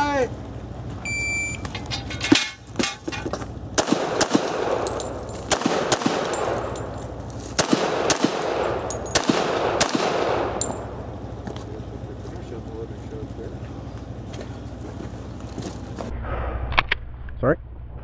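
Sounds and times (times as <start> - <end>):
shot timer beep: 1.0 - 1.6
pistol shots in pairs: 3.8 - 6.9, 7.6 - 11.0.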